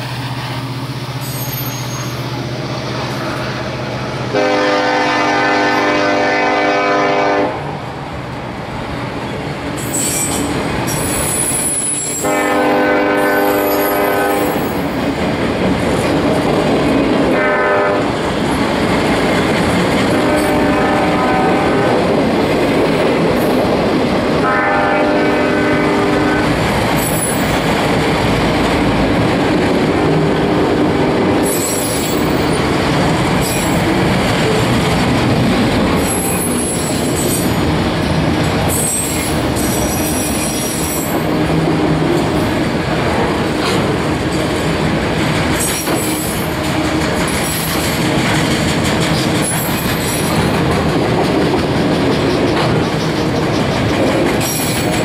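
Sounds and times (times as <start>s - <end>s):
steel wheels rolling on rail: 0.0s - 55.0s
high-pitched wheel squeal: 1.2s - 2.4s, 9.8s - 12.2s.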